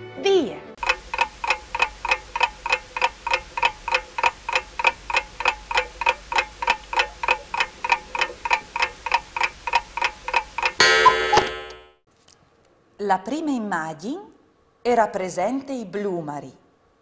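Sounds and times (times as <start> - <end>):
clock ticking: 0.8 - 11.9.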